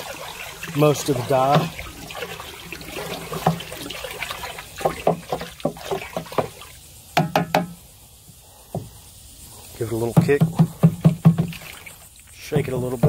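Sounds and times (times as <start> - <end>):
water swishing in plastic drum: 0.0 - 6.9, 9.8 - 13.0
stick knocking on drum: 7.2 - 7.8.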